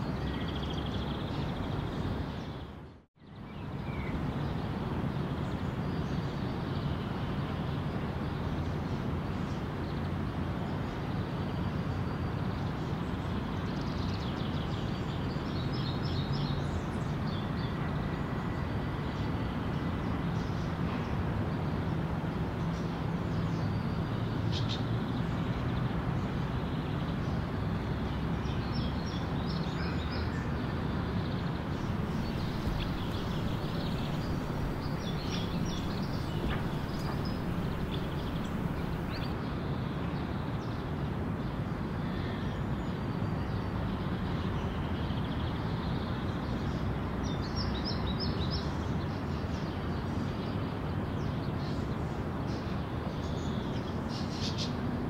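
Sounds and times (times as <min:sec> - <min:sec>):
cars driving over a bridge: 0:31.8 - 0:39.3
bird chirps: 0:31.8 - 0:39.4.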